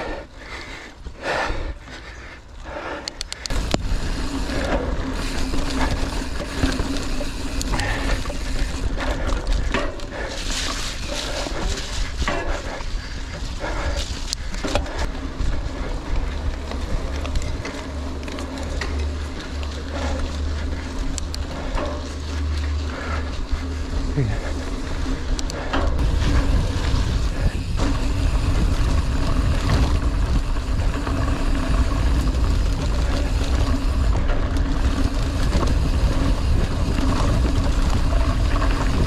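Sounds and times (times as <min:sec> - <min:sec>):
bike rattling and knocking: 0:00.0 - 0:39.0
bike tyre noise: 0:00.0 - 0:39.0
wind buffeting microphone: 0:03.5 - 0:18.4, 0:22.8 - 0:39.0.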